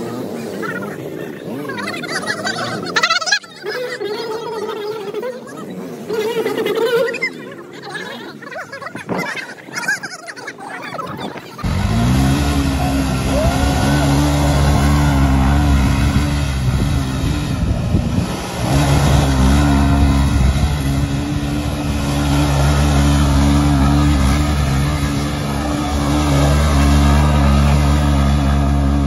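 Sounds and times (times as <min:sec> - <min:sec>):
motorcycle engine revving: 0:11.6 - 0:29.0
rear wheel spinning on loose dirt: 0:11.6 - 0:29.0.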